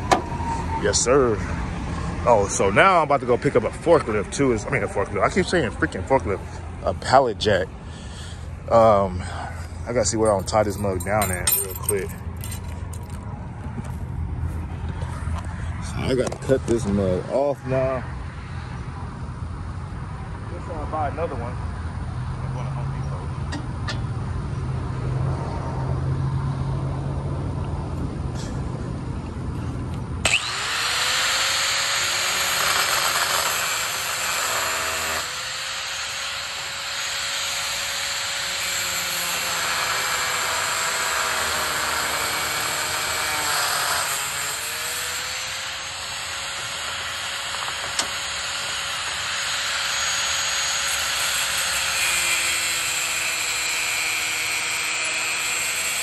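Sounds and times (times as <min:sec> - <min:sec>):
low engine-like hum: 0:00.0 - 0:30.5
grinder whining while cutting: 0:30.2 - 0:56.0.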